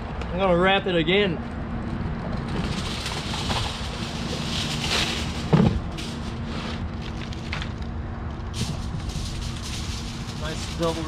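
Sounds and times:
aluminium foil crinkling: 2.5s - 11.0s.

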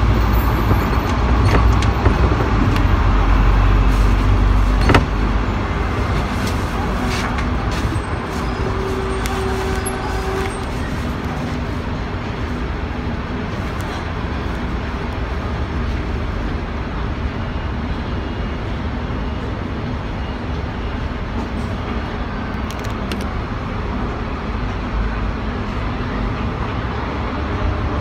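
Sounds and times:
city traffic noise: 0.0s - 28.0s.

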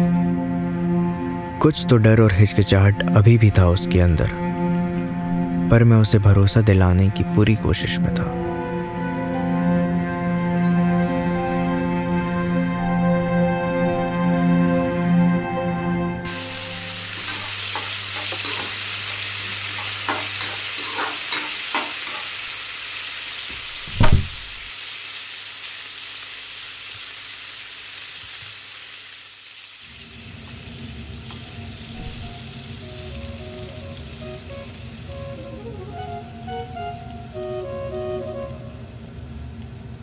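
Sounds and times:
soft music: 0.0s - 22.4s, 31.3s - 39.6s
steady hiss: 16.3s - 40.0s
heavy thump: 23.8s - 24.6s.

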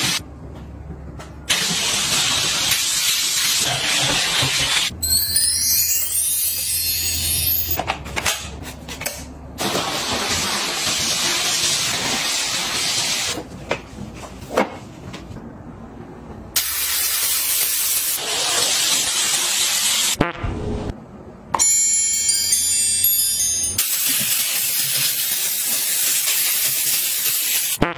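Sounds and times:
steam cleaner hissing: 1.5s - 4.9s, 9.6s - 13.4s, 16.6s - 20.2s, 23.8s - 27.8s.

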